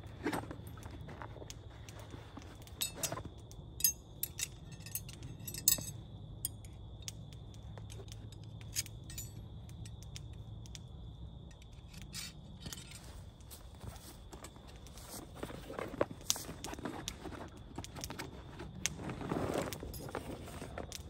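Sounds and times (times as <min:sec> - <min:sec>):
small hard objects clinking: 0:01.9 - 0:06.6.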